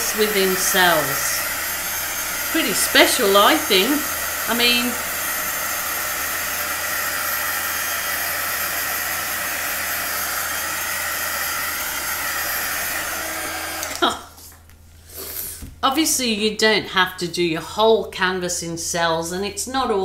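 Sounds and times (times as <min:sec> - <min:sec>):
heat gun fan hissing: 0:00.0 - 0:14.0
heat gun switch off: 0:00.0 - 0:14.2.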